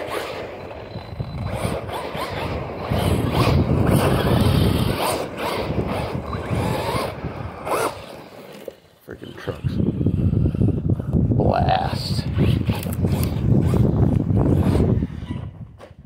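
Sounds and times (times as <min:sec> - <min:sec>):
electric motor whining: 0:00.0 - 0:08.8, 0:12.2 - 0:15.6
tyres rolling on gravel: 0:00.0 - 0:09.5.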